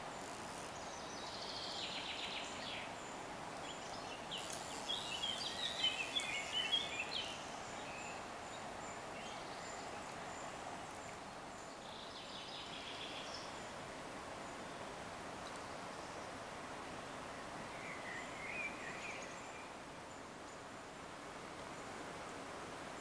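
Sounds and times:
thin high insect tone: 0.0 - 8.2
songbird chirping: 0.0 - 13.8
outdoor hiss: 0.0 - 23.0.

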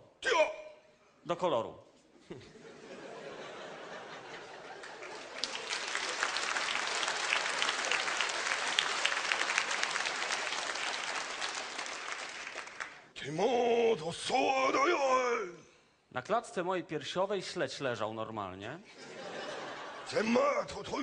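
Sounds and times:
audience applauding: 4.2 - 13.1.

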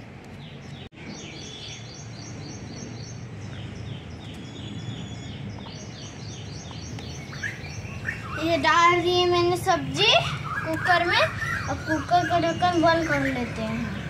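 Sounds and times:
bird singing high falling notes: 3.8 - 9.3, 10.0 - 14.0.

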